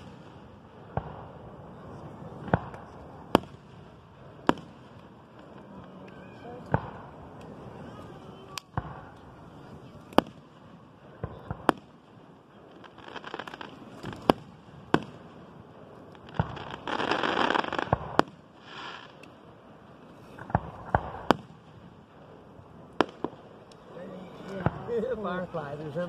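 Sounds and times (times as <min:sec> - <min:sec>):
loud fireworks crackling: 0:00.0 - 0:26.0.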